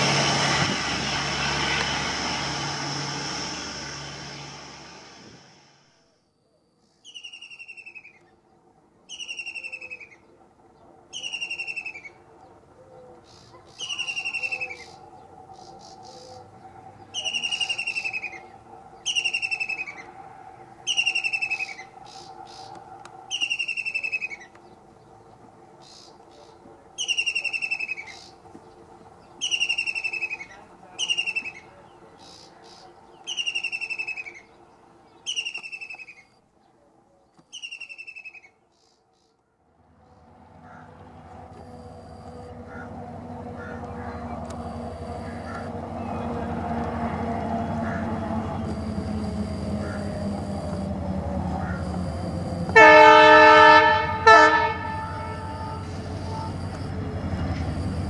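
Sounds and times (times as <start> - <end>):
kingfisher trilled call: 13.4 - 15.0, 17.1 - 20.1, 20.8 - 22.7.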